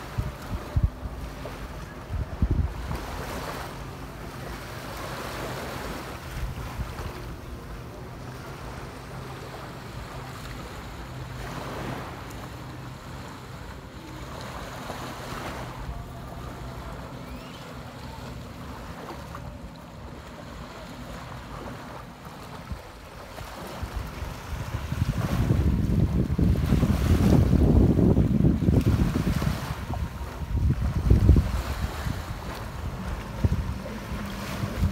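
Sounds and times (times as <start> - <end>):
wind buffeting microphone: 0.0 - 4.4, 5.0 - 7.8, 21.4 - 34.9
surf washing onto beach: 0.0 - 34.9.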